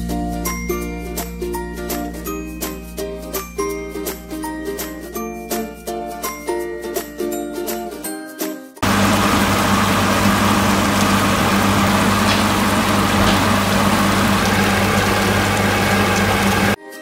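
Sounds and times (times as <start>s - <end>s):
chicken sizzling in a frying pan: 8.8s - 16.8s
low hum: 8.8s - 16.8s.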